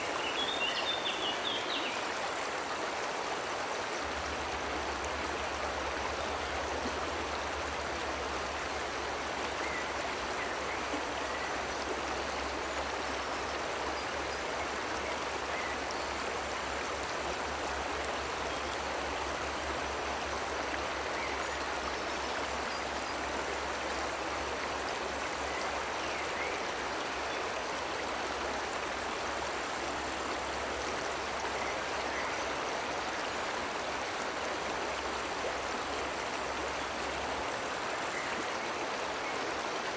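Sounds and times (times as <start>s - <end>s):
waterfall rushing over rocks: 0.0s - 39.9s.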